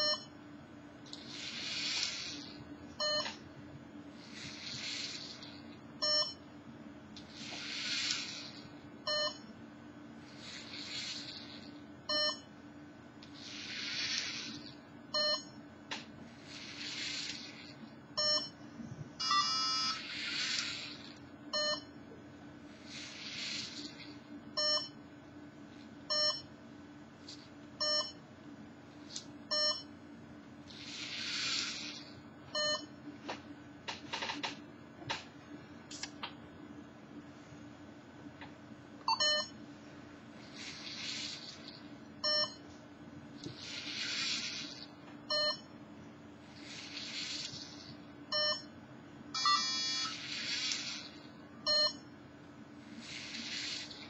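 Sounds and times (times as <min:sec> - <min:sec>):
short electronic beeps: 0:03.0 - 0:03.4, 0:06.0 - 0:06.4, 0:19.2 - 0:20.1, 0:26.1 - 0:26.5, 0:27.8 - 0:28.2, 0:29.5 - 0:29.9, 0:39.1 - 0:39.5, 0:42.2 - 0:42.6, 0:45.3 - 0:45.7, 0:48.3 - 0:48.7, 0:49.4 - 0:50.2, 0:51.7 - 0:52.0.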